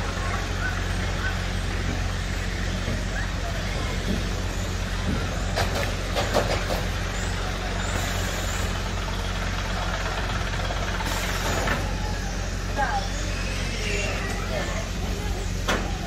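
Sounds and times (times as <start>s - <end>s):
voices: 0.0s - 16.0s
brief hisses: 7.9s - 8.8s, 11.0s - 11.9s.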